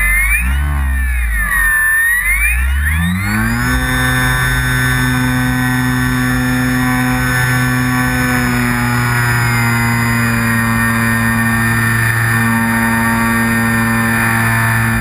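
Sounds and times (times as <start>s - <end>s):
electric motor and propeller whine: 0.0s - 15.0s.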